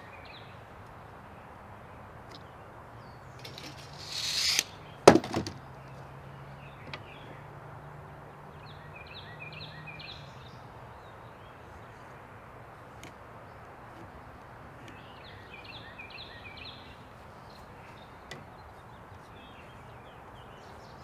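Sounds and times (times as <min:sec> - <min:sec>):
tool scraping wood: 0:03.5 - 0:05.4.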